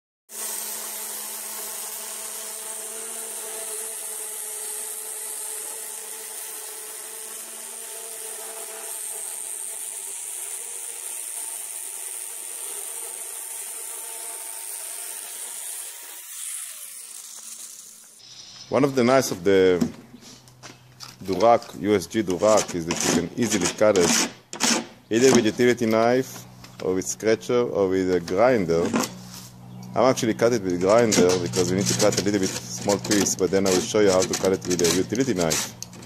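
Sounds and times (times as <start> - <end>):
angle grinder cutting board: 0.3 - 18.8, 22.3 - 26.0, 30.4 - 36.0
grinder winding down: 0.4 - 18.8.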